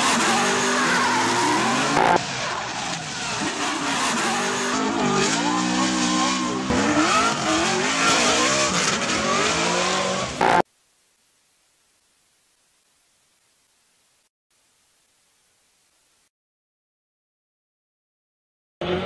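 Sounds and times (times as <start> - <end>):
car engine revving hard: 0.0 - 10.6
spinning tyres squealing: 0.0 - 10.6.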